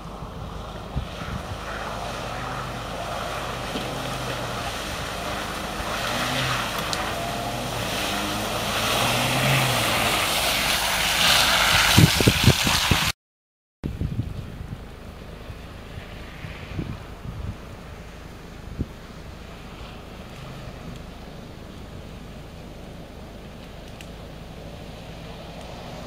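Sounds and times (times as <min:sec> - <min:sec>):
tyres sloshing through mud: 0:00.1 - 0:13.1
car engine running: 0:14.2 - 0:26.0.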